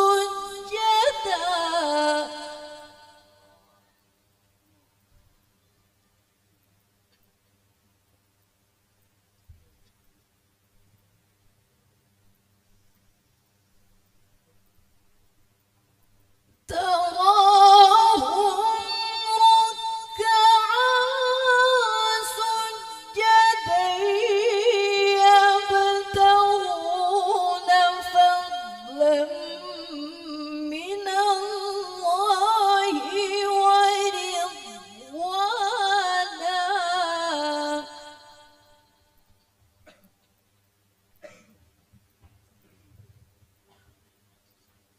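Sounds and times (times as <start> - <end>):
woman reciting melodically: 0.0 - 3.5, 16.7 - 38.9.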